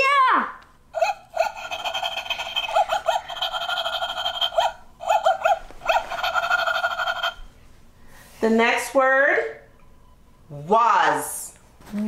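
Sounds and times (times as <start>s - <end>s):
toy robot dog electronic chirps: 1.0s - 7.4s.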